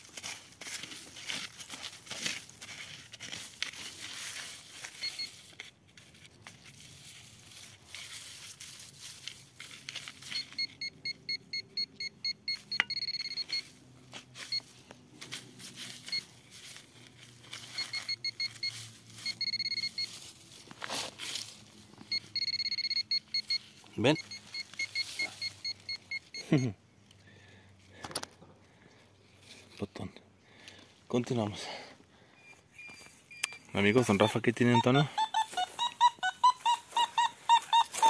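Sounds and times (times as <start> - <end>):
soil scraping and crackling: 0.0 - 10.6, 14.0 - 22.1
metal detector beeping: 4.5 - 5.7, 10.0 - 14.8, 15.7 - 20.4, 21.9 - 26.8, 32.4 - 38.0.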